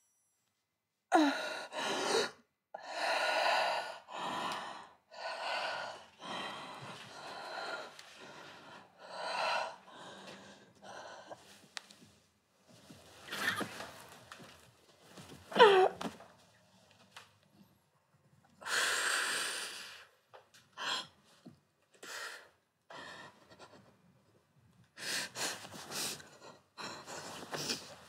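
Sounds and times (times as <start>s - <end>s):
girl breathing heavily: 1.2s - 11.6s.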